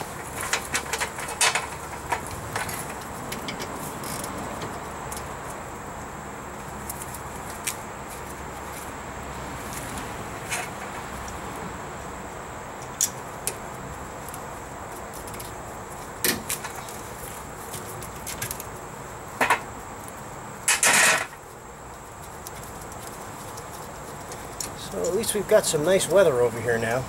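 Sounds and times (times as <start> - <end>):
metal tools clattering: 0.0 - 3.7.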